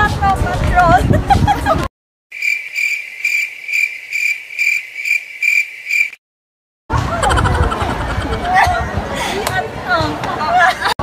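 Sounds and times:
cricket chirping: 2.3 - 6.2.

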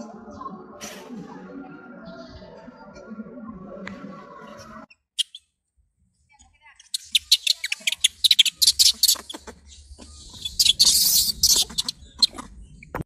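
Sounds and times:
macaque squealing and chirping: 5.2 - 5.5, 6.8 - 12.9
macaque shrill cry: 6.9 - 9.4, 10.3 - 12.4.

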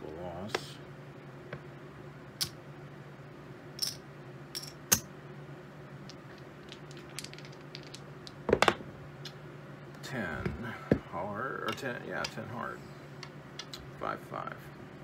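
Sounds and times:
steady low hum: 0.0 - 15.0
poker chips and dice clicking: 6.1 - 8.4.

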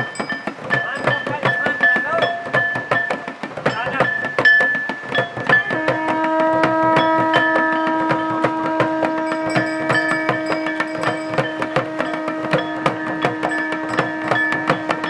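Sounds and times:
drums beating fast rhythm: 0.0 - 15.0
conch shell blown: 5.4 - 15.0.

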